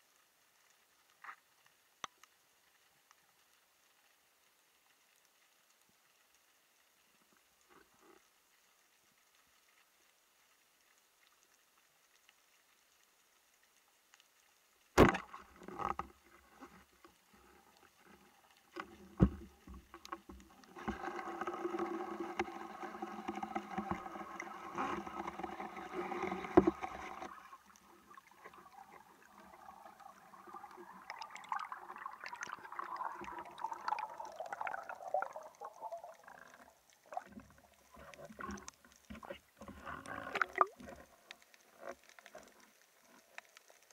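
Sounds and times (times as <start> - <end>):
air bubbles streaming: 19.1 - 41.2.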